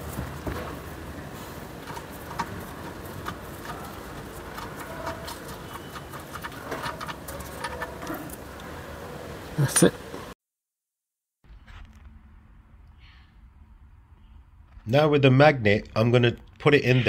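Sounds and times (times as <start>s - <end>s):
rubber glove rubbing: 0.0s - 8.6s
metal swarf scraping: 1.4s - 8.8s.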